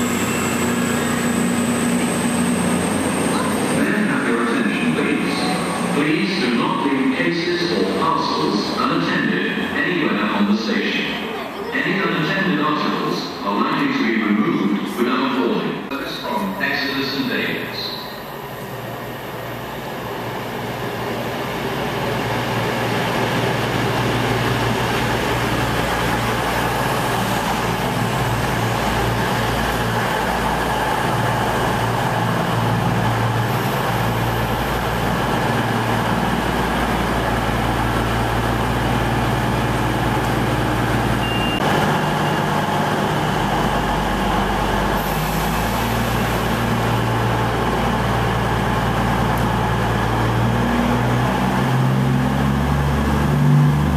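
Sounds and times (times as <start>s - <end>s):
diesel engine drone: 0.0s - 11.2s, 11.8s - 53.9s
train noise: 0.0s - 53.9s.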